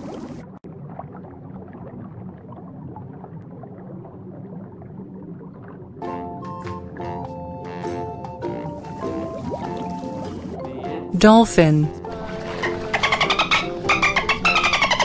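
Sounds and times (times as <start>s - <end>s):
underwater rumble: 0.0s - 6.3s
bubbles blipping: 0.0s - 10.6s
music: 6.0s - 15.0s.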